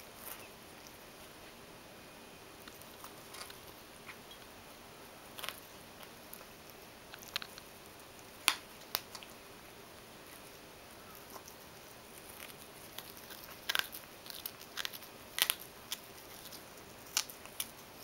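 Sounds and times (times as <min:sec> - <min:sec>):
cat gnawing carpet: 0:02.6 - 0:04.2, 0:05.3 - 0:09.4, 0:10.2 - 0:18.0.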